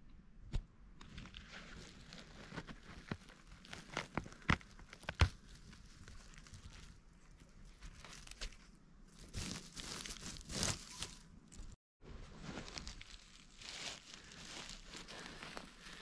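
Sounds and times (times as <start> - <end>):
needles and twigs snapping: 1.0 - 11.7
rustling of forest floor: 1.1 - 16.0.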